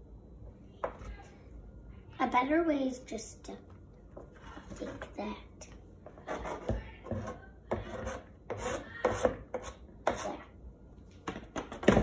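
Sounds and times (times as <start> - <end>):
knife scraping plastic cutting board: 6.2 - 10.4.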